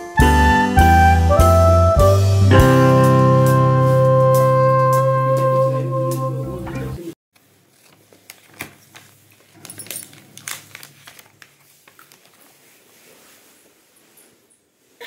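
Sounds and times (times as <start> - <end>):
background music: 0.0 - 7.1
plastic film crinkling: 7.4 - 14.2.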